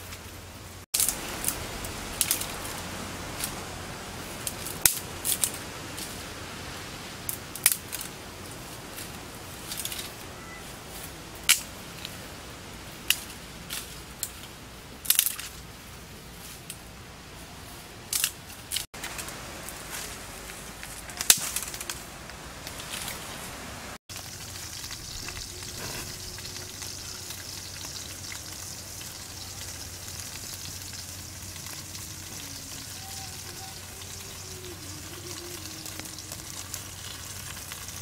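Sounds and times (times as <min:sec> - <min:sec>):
steady background hiss: 0:00.0 - 0:38.0.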